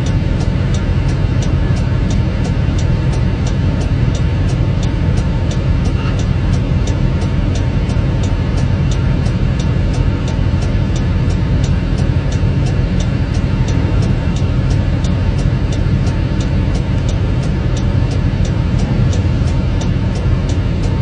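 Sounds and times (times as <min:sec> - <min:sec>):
vehicle engine idling: 0:00.0 - 0:21.0.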